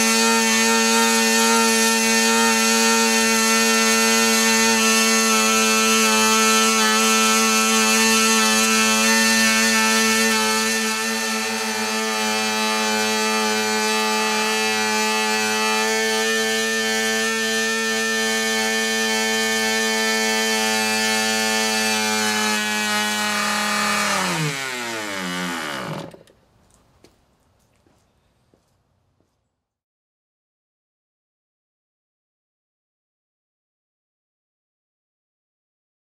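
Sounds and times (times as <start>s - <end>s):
model engine running at high speed: 0.0s - 26.2s.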